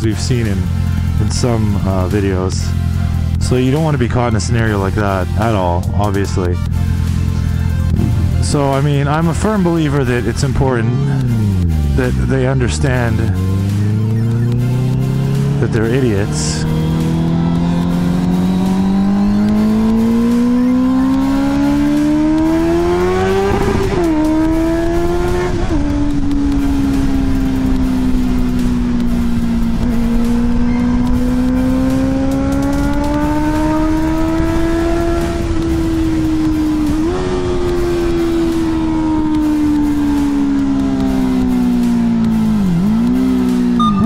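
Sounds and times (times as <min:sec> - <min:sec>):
motorcycle engine accelerating: 0:00.0 - 0:44.0
gear upshifts: 0:03.3 - 0:44.0.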